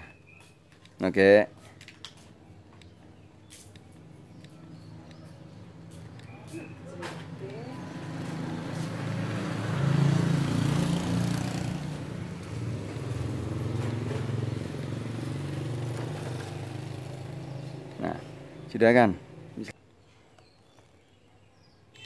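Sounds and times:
vehicle engine running: 0:02.9 - 0:19.6.

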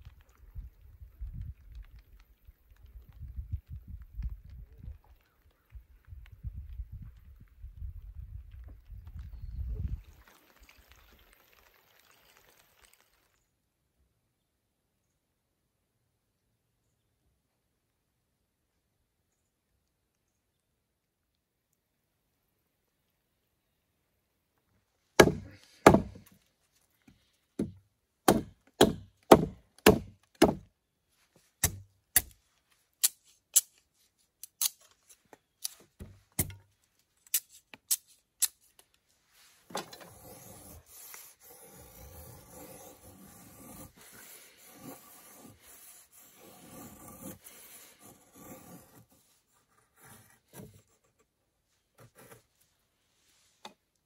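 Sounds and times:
sharp wooden knocks: 0:25.2 - 0:26.2, 0:27.6 - 0:30.6
knife blade scraping wood: 0:33.0 - 0:36.6, 0:37.3 - 0:38.8, 0:39.6 - 0:51.3.

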